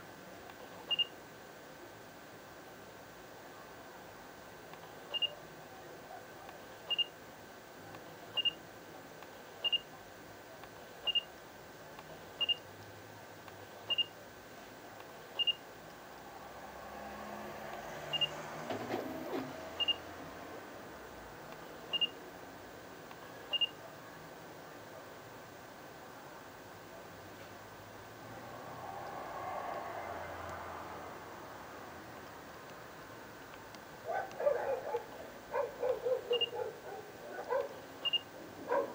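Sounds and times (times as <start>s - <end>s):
camera autofocus beep: 0.9s - 1.2s, 5.1s - 5.4s, 6.9s - 7.2s, 8.4s - 8.6s, 9.6s - 9.9s, 11.1s - 11.3s, 12.4s - 12.6s, 13.9s - 14.2s, 15.4s - 15.6s, 18.1s - 18.4s, 19.8s - 20.0s, 21.9s - 22.2s, 23.5s - 23.8s, 36.3s - 36.6s, 38.0s - 38.3s.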